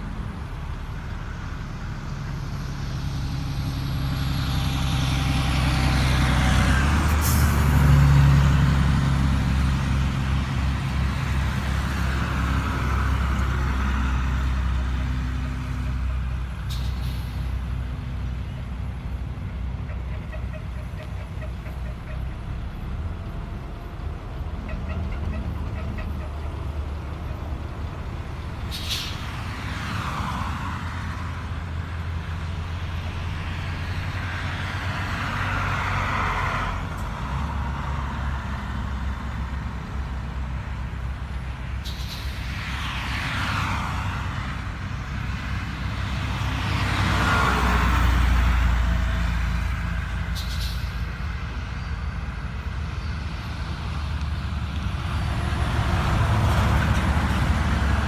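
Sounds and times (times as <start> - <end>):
diesel engine rumble: 0.0 - 58.0
sharp hisses: 28.7 - 29.4, 41.8 - 42.8, 50.3 - 51.2.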